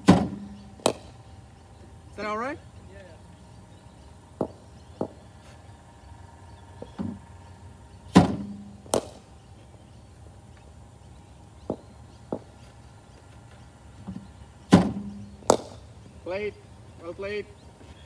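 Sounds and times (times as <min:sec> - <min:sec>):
bat hitting ball: 0:00.0 - 0:01.2, 0:04.4 - 0:05.2, 0:08.1 - 0:09.3, 0:14.7 - 0:15.9
machine hum: 0:00.0 - 0:18.0
bowling machine firing thump: 0:08.1 - 0:09.2.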